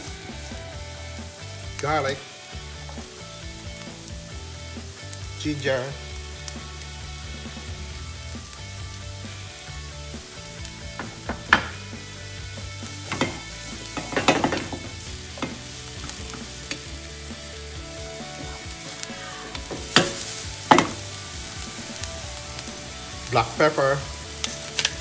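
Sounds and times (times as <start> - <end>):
food sizzling in oil: 0.0 - 25.0
wooden spatula scraping pan: 13.0 - 16.9.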